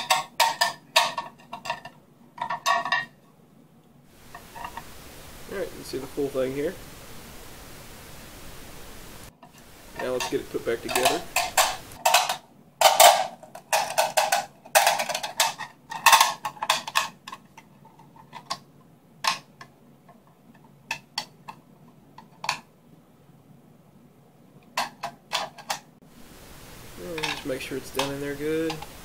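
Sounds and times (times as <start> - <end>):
spring scraping and clicking on metal: 10.0 - 18.6.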